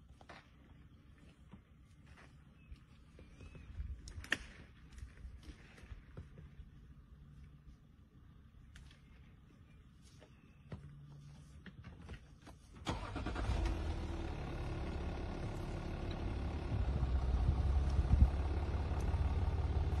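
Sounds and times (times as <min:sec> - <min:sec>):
car engine starting and running: 0:12.8 - 0:20.0.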